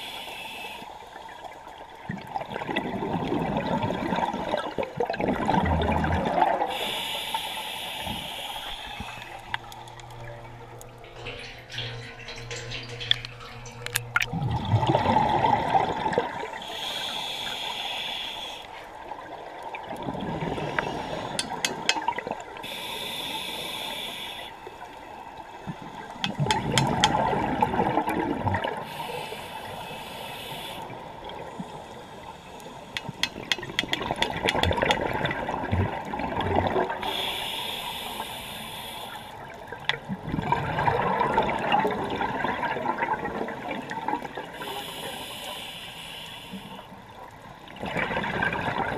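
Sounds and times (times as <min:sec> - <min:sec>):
regulator inhale hiss: 0:00.0 - 0:01.4, 0:06.7 - 0:09.6, 0:16.6 - 0:19.0, 0:20.6 - 0:21.9, 0:22.6 - 0:25.0, 0:28.8 - 0:33.4, 0:37.0 - 0:39.5, 0:44.5 - 0:47.0
exhaled bubbles rushing: 0:02.0 - 0:06.7, 0:13.9 - 0:16.6, 0:19.1 - 0:22.6, 0:25.7 - 0:28.8, 0:33.4 - 0:37.0, 0:39.8 - 0:44.5, 0:47.7 - 0:48.9.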